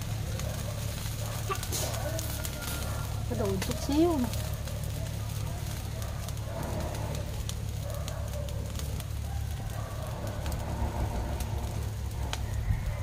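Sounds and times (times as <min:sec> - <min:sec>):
wood fire crackling: 0:00.0 - 0:13.0.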